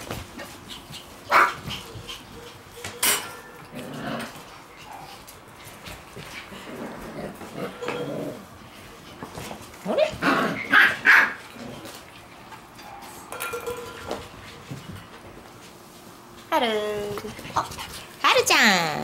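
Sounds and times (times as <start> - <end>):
puppies barking: 0.8 - 3.8, 9.8 - 11.6.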